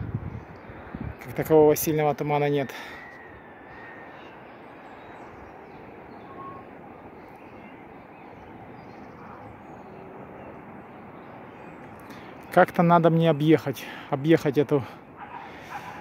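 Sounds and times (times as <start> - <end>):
distant traffic hum: 0.0 - 16.0
faint bird calls: 2.6 - 12.6, 14.9 - 16.0.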